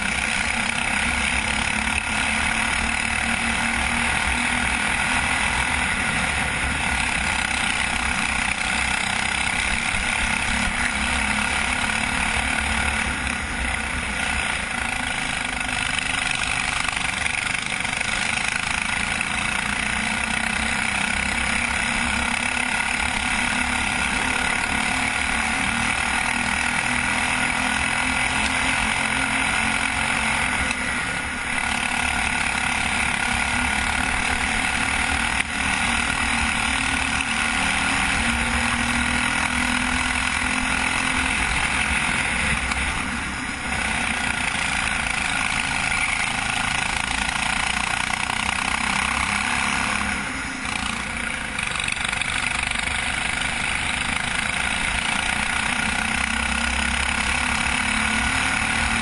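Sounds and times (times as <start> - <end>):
go-kart engine running hard: 0.0 - 59.0.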